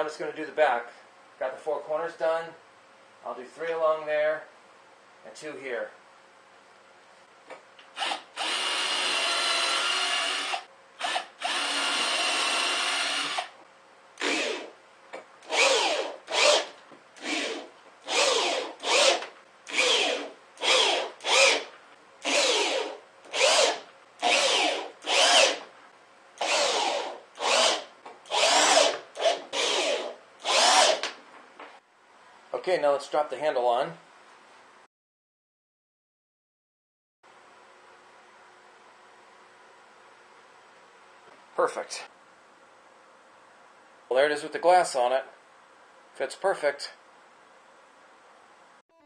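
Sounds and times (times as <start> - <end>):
power drill driving screws: 8.0 - 13.6, 14.2 - 14.7, 15.4 - 25.7, 26.4 - 31.1.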